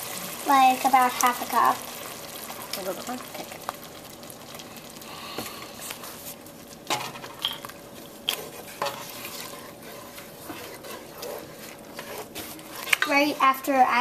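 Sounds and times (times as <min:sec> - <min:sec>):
low simmering sizzle: 0:00.0 - 0:14.0
cream stirred in pot: 0:05.8 - 0:14.0.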